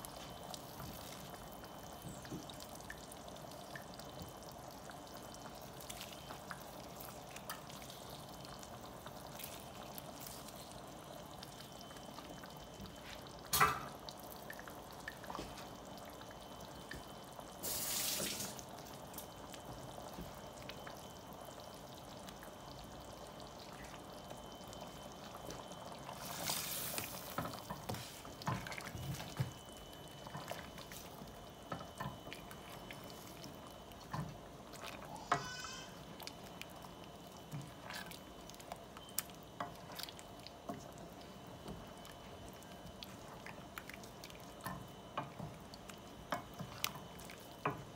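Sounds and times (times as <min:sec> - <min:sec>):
liquid trickling and dripping: 0:00.0 - 0:47.9
wooden spoon stirring sauce: 0:04.1 - 0:13.3, 0:25.3 - 0:47.9.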